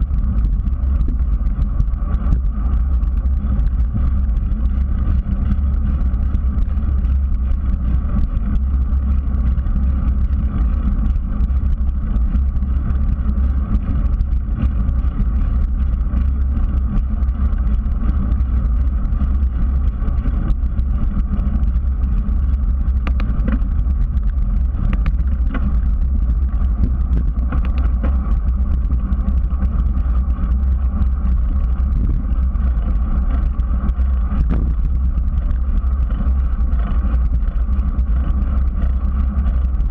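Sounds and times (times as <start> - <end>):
bicycle tyres on pavement: 0.0 - 39.9
wind buffeting microphone: 0.0 - 39.9.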